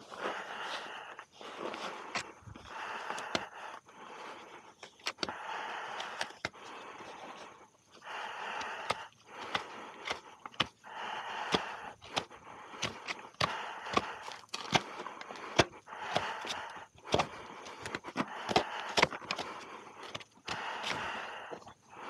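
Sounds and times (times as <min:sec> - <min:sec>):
sharp clicks: 0:04.8 - 0:06.7, 0:08.1 - 0:21.3
knife scraping hoof: 0:08.1 - 0:21.6.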